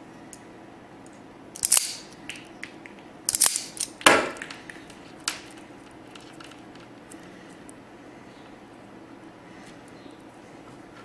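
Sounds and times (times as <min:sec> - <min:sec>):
wire strippers snapping: 0:01.6 - 0:06.9.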